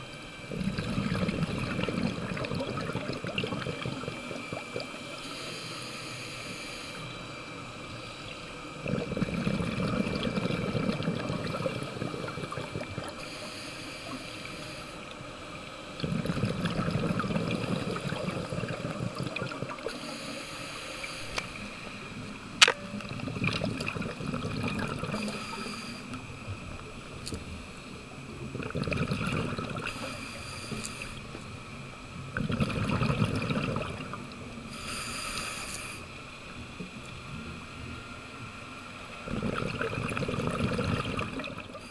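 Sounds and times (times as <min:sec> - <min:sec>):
exhaust bubbles burbling: 0:00.5 - 0:05.0, 0:08.8 - 0:13.2, 0:16.0 - 0:19.9, 0:23.0 - 0:25.4, 0:28.4 - 0:30.1, 0:32.3 - 0:34.4, 0:39.2 - 0:41.9
regulator inhale hiss: 0:03.9 - 0:08.8, 0:11.6 - 0:16.0, 0:19.8 - 0:22.2, 0:25.0 - 0:26.5, 0:29.8 - 0:31.4, 0:34.6 - 0:36.2.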